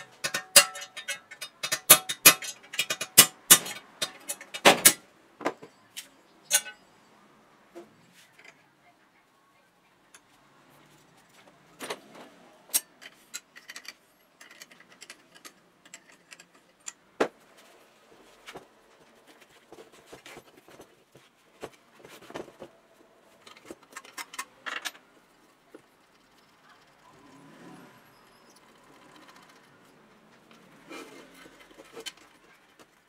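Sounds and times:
bicycle wheel being handled: 0.0 - 5.0, 6.0 - 6.8, 28.6 - 33.0
wrench clicks and metal clinks: 0.0 - 5.0, 6.5 - 6.8, 12.7 - 17.0.

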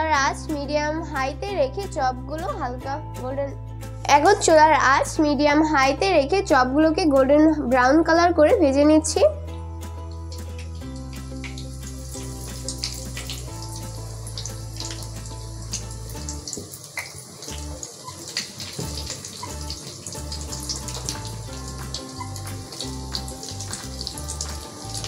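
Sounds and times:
background music: 0.0 - 25.0
fish deep-frying in oil: 10.0 - 25.0.

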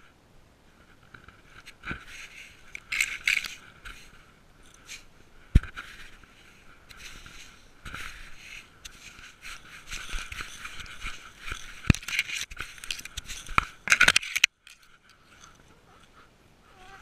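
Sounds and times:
brushing against camera: 0.8 - 17.0
twigs snapping: 9.9 - 15.6.

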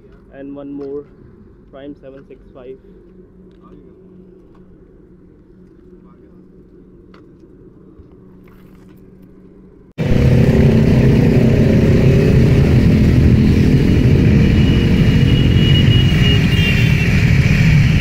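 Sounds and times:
motorcycle engine rumble: 10.0 - 18.0
wind rushing: 10.0 - 18.0.

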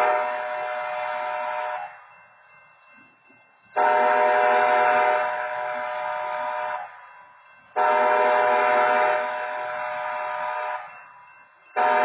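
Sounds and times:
railroad crossing horn blasts: 0.0 - 1.9, 3.8 - 7.0, 7.8 - 10.9, 11.8 - 12.0.

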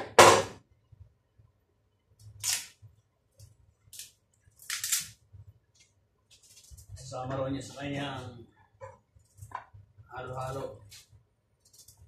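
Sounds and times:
banana peels rustling: 3.4 - 7.0.

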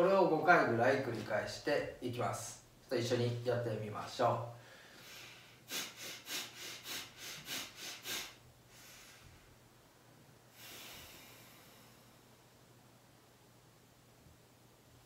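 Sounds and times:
long nasal exhale: 4.6 - 9.6, 10.5 - 12.2
man breathing forcefully through nose: 4.6 - 9.6, 10.5 - 12.2
slow nasal inhale: 4.6 - 9.6, 10.5 - 12.4.

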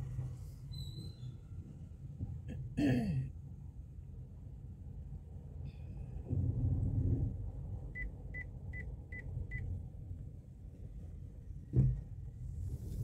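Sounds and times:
car driving rumble: 0.0 - 13.0
thump: 11.7 - 12.1.

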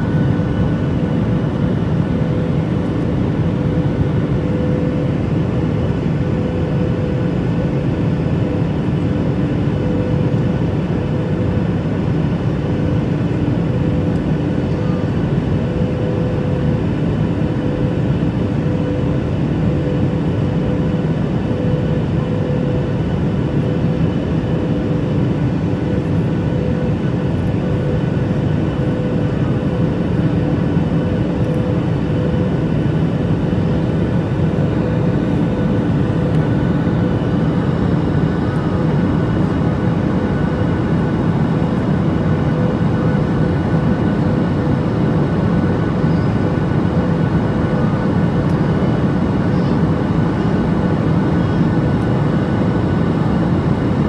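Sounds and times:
aircraft cabin engine noise: 0.0 - 54.0
steady hum: 0.0 - 54.0.

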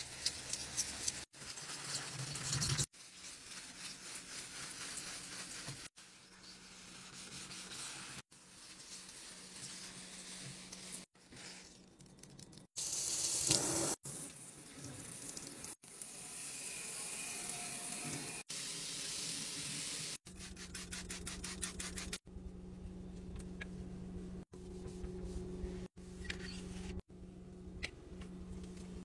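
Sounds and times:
tap water running: 12.8 - 16.2.

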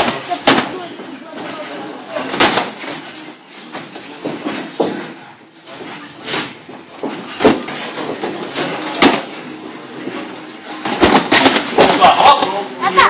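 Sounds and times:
punches and kicks landing: 7.1 - 9.4, 10.8 - 12.2.

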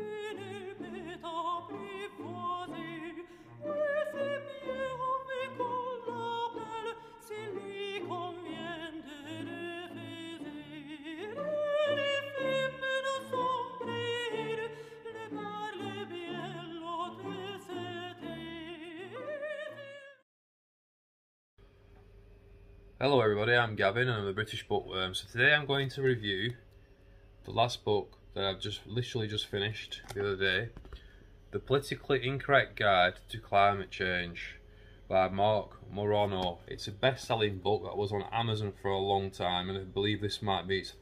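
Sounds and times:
opera singer with vibrato: 0.0 - 20.2.

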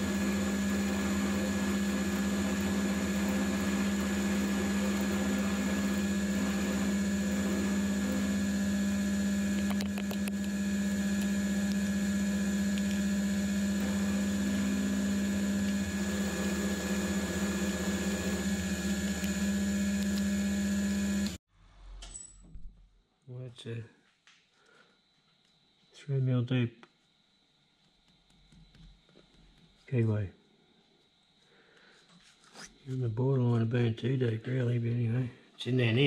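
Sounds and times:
high cutting whine: 0.0 - 21.4
mill drill motor humming: 0.0 - 21.4.

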